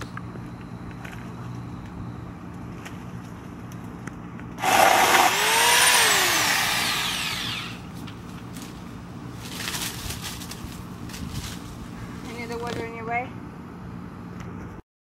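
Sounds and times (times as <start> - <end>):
electric chainsaw running: 4.6 - 7.9.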